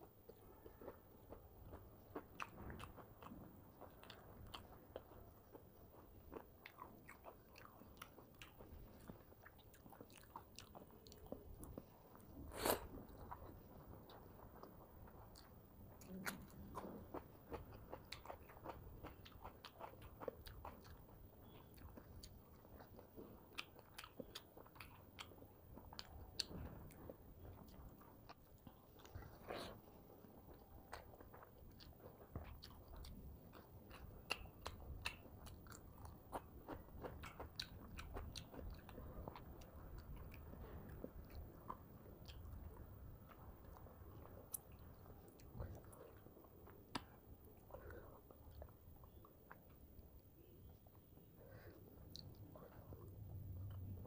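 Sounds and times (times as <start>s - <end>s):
person chewing wetly: 0.1s - 54.0s
food crunching: 0.3s - 54.0s.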